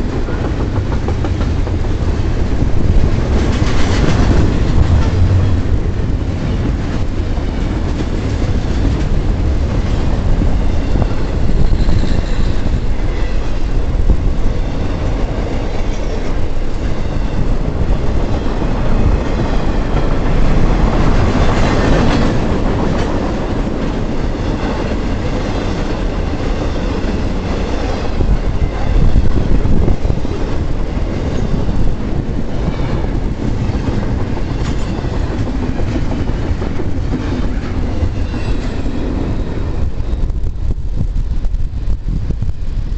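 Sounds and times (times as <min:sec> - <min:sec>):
wheels clacking over rail joints: 0:00.0 - 0:13.8
freight train wheels rumbling: 0:00.0 - 0:42.9.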